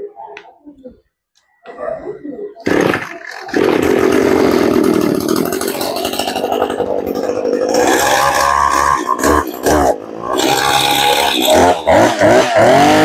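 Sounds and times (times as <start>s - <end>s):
brush-cutter engine running: 2.6s - 13.0s
recoil starter cord pull: 2.7s - 13.0s.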